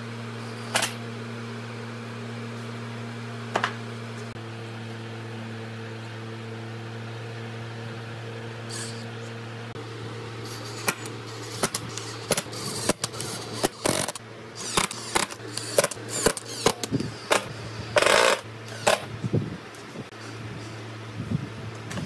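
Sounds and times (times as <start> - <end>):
steady low hum: 0.0 - 22.0
cordless drill driving screws: 10.4 - 19.1.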